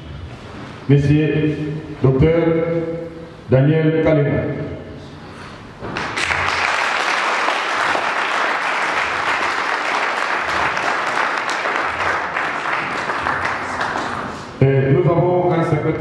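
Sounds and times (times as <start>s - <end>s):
audience applauding: 6.0s - 14.6s.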